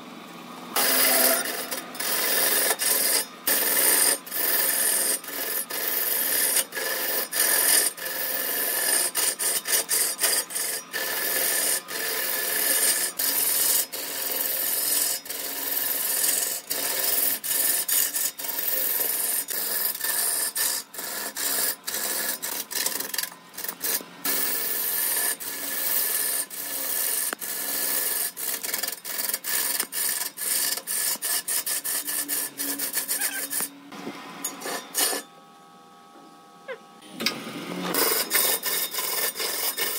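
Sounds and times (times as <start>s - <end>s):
lathe tool shaving wood: 0.8s - 33.8s, 34.5s - 35.2s, 37.3s - 39.9s.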